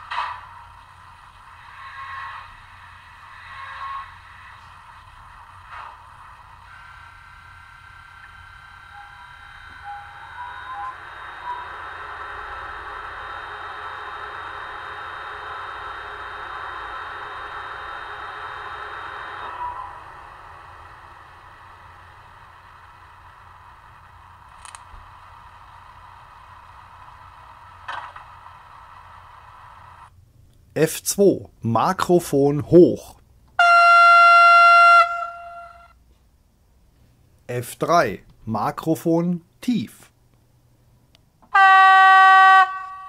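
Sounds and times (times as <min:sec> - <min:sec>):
model locomotive operating sound: 0:00.0 - 0:30.2, 0:32.1 - 0:36.0, 0:41.4 - 0:43.0
cooling fans rushing: 0:00.0 - 0:31.3.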